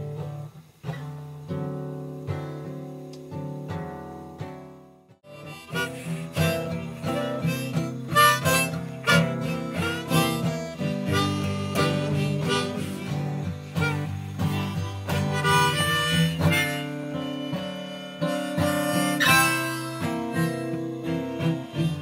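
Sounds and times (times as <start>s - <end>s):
acoustic guitar strumming: 0.0s - 22.0s
harmonica playing: 5.2s - 22.0s.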